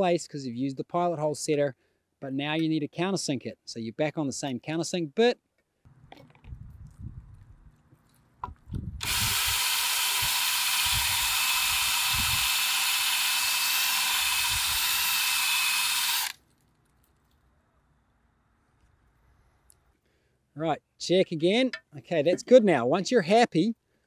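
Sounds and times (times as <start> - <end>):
cordless drill whirring: 9.0 - 16.4.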